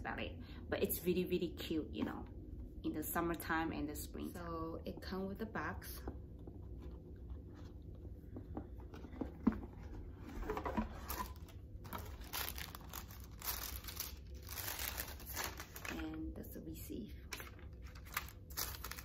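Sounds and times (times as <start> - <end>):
cardboard box handling: 8.4 - 13.1
tissue paper crinkling: 10.6 - 16.1, 17.3 - 19.0.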